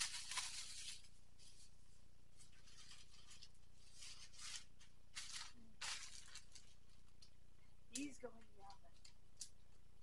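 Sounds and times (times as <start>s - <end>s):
plastic bag crinkling: 0.0s - 1.1s, 2.4s - 7.4s
low steady hum: 0.0s - 10.0s.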